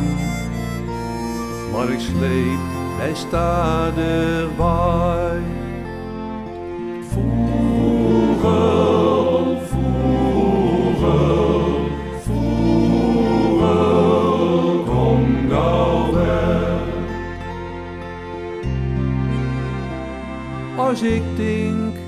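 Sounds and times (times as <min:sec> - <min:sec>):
low bass line: 0:00.0 - 0:22.0
men's choir singing: 0:07.0 - 0:17.5.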